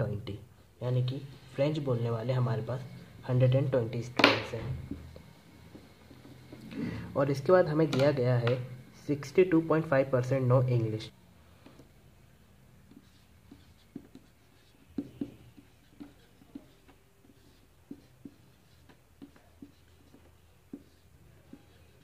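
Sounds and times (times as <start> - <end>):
marker pen writing: 12.7 - 22.0.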